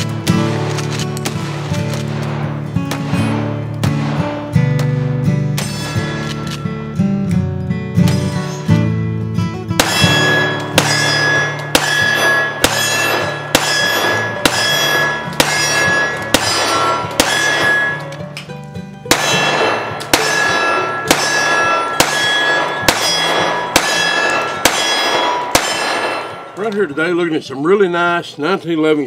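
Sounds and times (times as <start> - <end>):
pistol shots: 0.0 - 6.6, 9.8 - 26.8
background music: 0.0 - 28.1
steel targets clanging: 5.5 - 6.8, 9.8 - 27.2.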